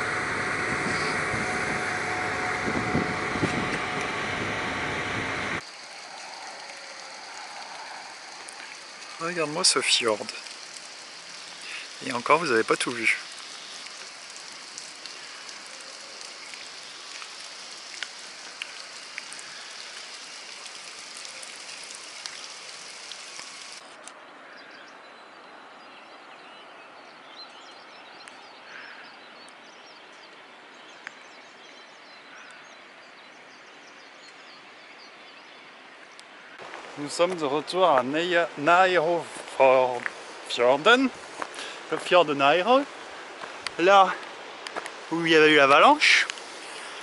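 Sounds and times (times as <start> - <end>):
steady hiss: 0.0 - 24.1, 36.3 - 47.0.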